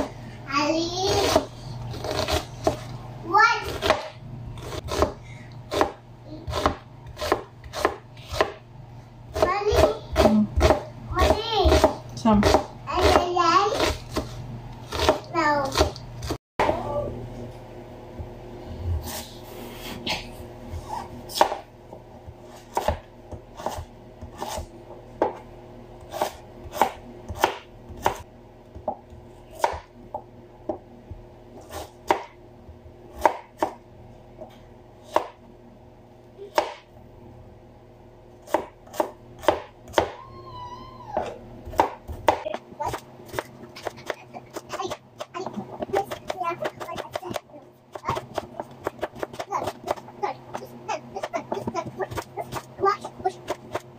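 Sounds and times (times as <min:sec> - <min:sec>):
steady low hum: 0:00.0 - 0:53.9
knife chopping on cutting board: 0:01.1 - 0:02.9, 0:03.7 - 0:08.6, 0:09.3 - 0:14.3, 0:14.9 - 0:16.8, 0:20.8 - 0:21.7, 0:22.4 - 0:30.9, 0:31.7 - 0:32.4, 0:33.1 - 0:33.8, 0:35.1 - 0:35.4, 0:36.5 - 0:36.9, 0:38.4 - 0:40.2, 0:41.7 - 0:53.9.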